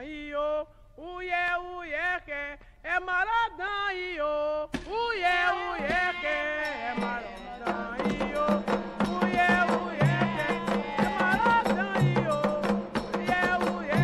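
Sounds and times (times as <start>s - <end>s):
woman singing a chant: 3.6s - 12.5s
percussion: 4.7s - 14.0s.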